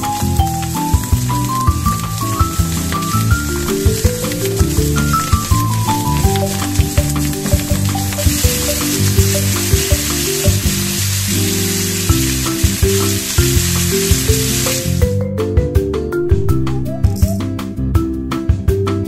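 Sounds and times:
chicken sizzling in frying pan: 0:00.0 - 0:15.0
background music: 0:00.0 - 0:19.0.

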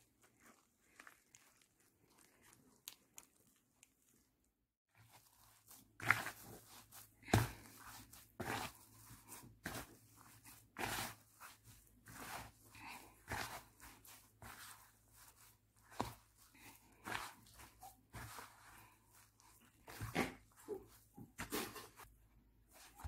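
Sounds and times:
hand squishing dough: 0:00.0 - 0:23.0.

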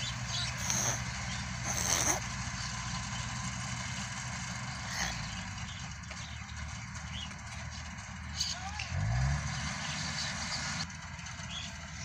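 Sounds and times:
auger unloading grain: 0:00.0 - 0:08.1
harvester and tractor engines running: 0:00.0 - 0:12.0.

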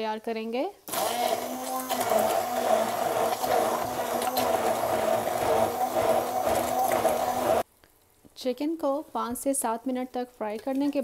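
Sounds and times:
immersion blender running: 0:00.9 - 0:07.6.

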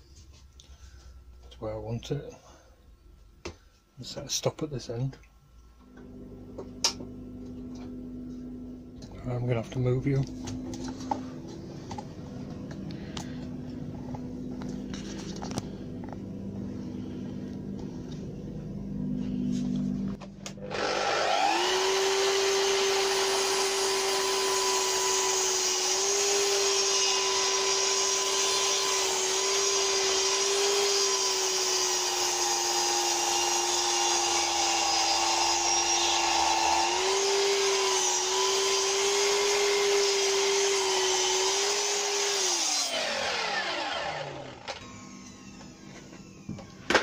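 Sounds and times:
mitre saw cutting wood: 0:20.6 - 0:46.6
saw winding down: 0:20.6 - 0:47.0.

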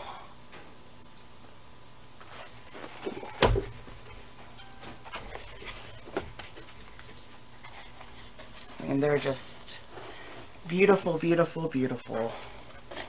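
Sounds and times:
thump: 0:03.4 - 0:03.8.

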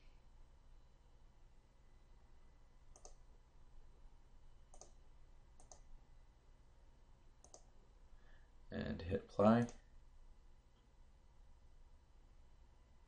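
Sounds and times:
low steady hum: 0:00.0 - 0:13.0
computer mouse clicks: 0:02.9 - 0:03.3, 0:04.7 - 0:05.0, 0:05.6 - 0:05.9, 0:07.4 - 0:07.7.

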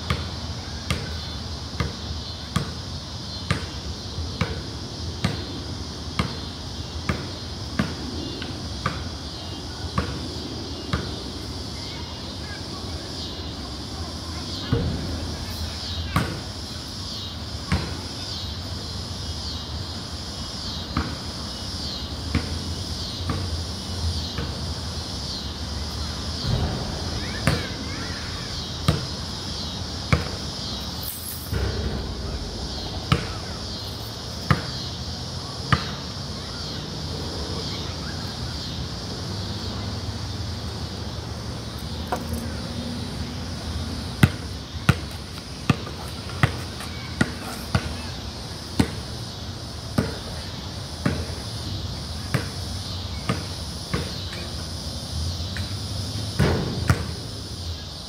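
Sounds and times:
basketball bouncing on concrete: 0:00.1 - 0:01.2, 0:01.8 - 0:02.8, 0:05.2 - 0:05.5, 0:30.1 - 0:30.4, 0:34.4 - 0:34.9, 0:35.7 - 0:36.0, 0:44.2 - 0:48.0, 0:48.8 - 0:49.0, 0:53.2 - 0:54.2, 0:56.4 - 0:57.2.

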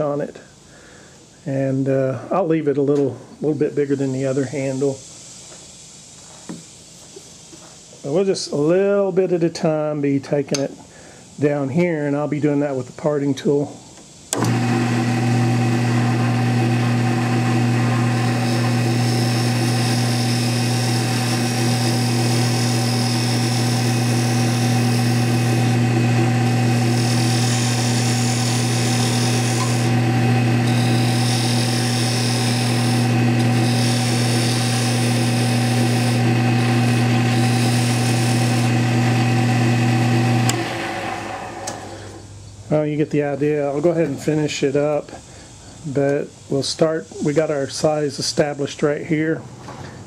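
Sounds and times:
lathe tool cutting hiss: 0:14.1 - 0:42.3
wood lathe motor humming: 0:14.4 - 0:42.2.

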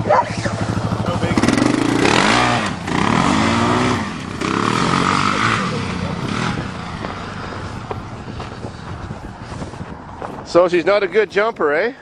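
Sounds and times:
quad bike engine revving: 0:00.0 - 0:09.2.

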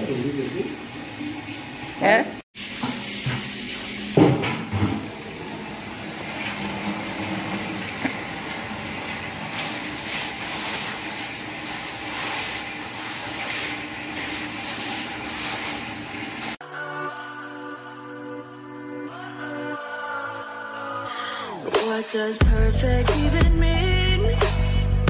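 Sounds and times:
broom scrubbing wet floor: 0:02.6 - 0:16.6.

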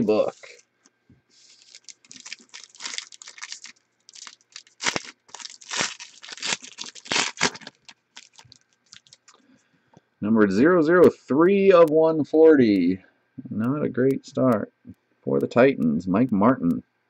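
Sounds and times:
cards rustling and clicking: 0:01.4 - 0:09.4
foil wrapper tearing and crinkling: 0:01.4 - 0:09.4.

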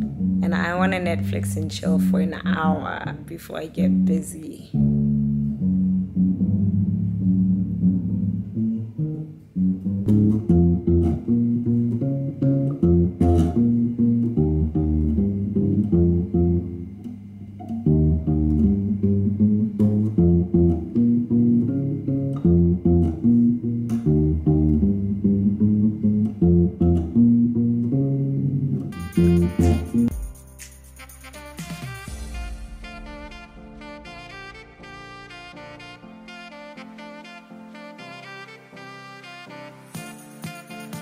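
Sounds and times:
electric bass fingerstyle: 0:00.0 - 0:30.3.

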